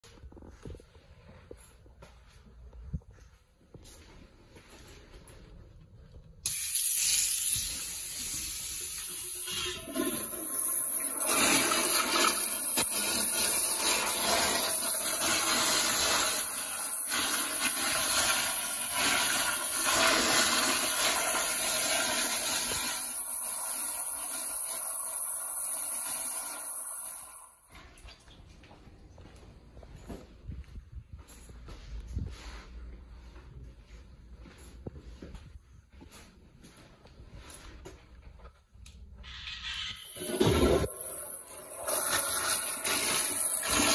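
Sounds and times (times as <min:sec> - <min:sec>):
toilet flushing: 0:06.5 - 0:28.0, 0:39.2 - 0:43.9.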